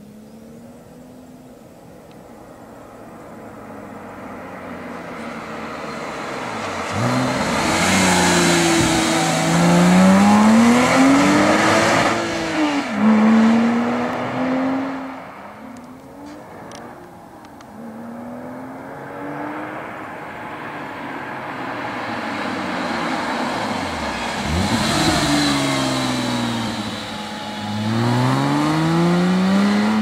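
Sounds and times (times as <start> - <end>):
car engine accelerating: 0.0 - 30.0.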